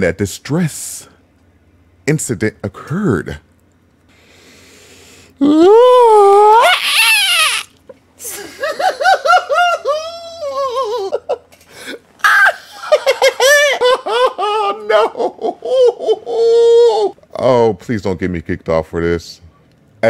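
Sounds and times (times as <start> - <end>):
man laughing hard: 8.2 - 17.1.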